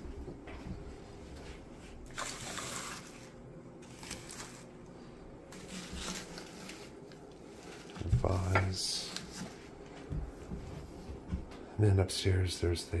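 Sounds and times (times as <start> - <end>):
rustling of household items: 0.0 - 11.8.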